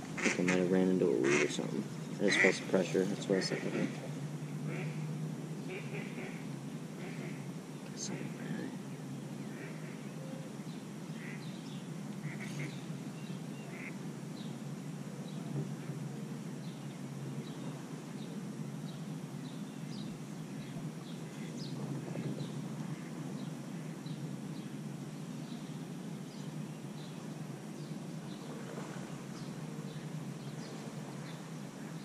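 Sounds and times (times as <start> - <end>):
low background rush: 0.0 - 32.0
ducks quacking: 0.2 - 5.0, 7.0 - 7.4, 11.2 - 11.4, 12.2 - 12.8, 13.7 - 14.0.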